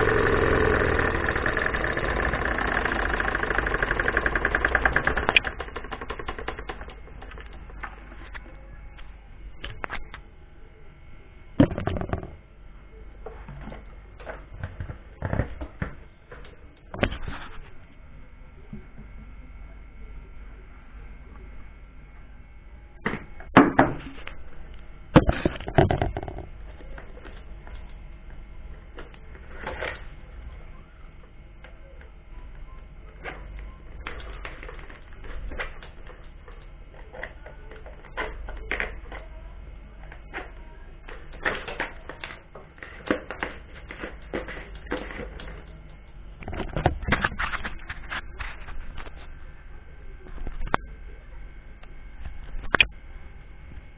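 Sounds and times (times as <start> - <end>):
plastic bowls clattering: 25.2 - 26.5.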